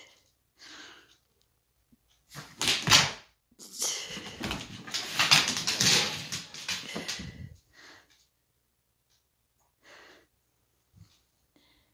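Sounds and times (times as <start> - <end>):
dog scuffling on laminate floor: 4.4 - 7.4.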